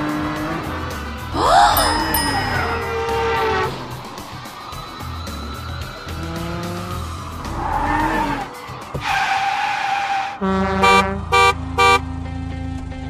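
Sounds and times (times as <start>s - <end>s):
engine running: 0.0s - 7.7s, 10.5s - 13.0s
music: 0.0s - 9.6s, 10.3s - 13.0s
cartoon tyre screech: 1.4s - 10.4s
loud horn honks: 2.7s - 4.1s, 10.4s - 12.0s.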